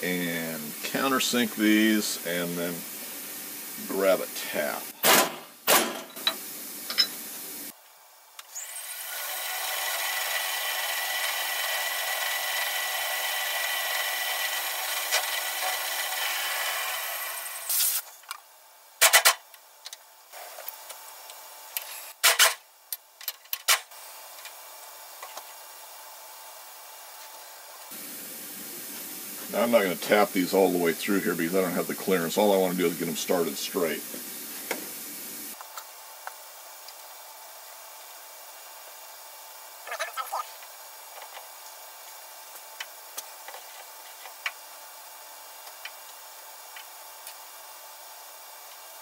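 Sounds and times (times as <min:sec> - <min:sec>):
faint hiss: 0:00.0 - 0:05.0, 0:27.1 - 0:35.6.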